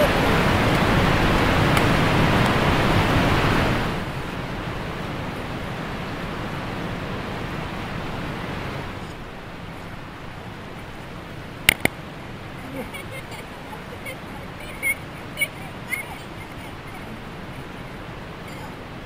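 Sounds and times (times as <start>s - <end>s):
rushing river rapids: 0.0s - 19.0s.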